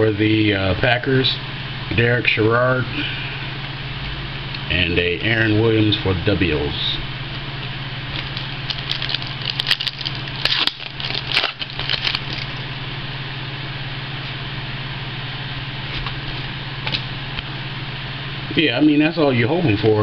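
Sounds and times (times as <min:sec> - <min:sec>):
steady low hum: 0:00.0 - 0:20.0
foil wrapper tearing and crinkling: 0:08.1 - 0:12.6.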